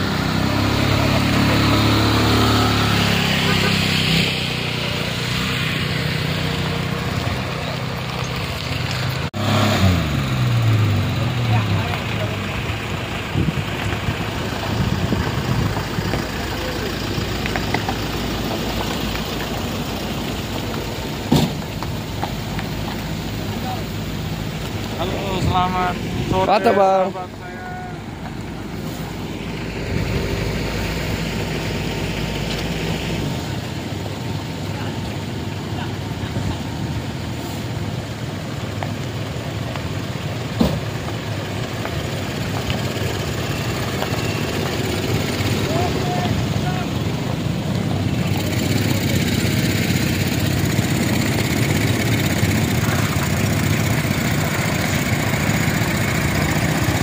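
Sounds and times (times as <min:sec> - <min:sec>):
heavy machinery engines humming: 0:00.0 - 0:57.0
nearer engine pitch falling: 0:00.0 - 0:57.0
road noise: 0:00.0 - 0:57.0
deep rumble: 0:07.0 - 0:26.6.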